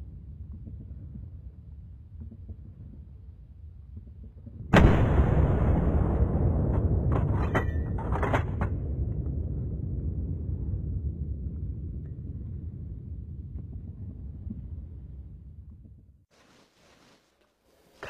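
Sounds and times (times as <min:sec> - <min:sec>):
rifle shot with rumble: 0:04.7 - 0:11.0.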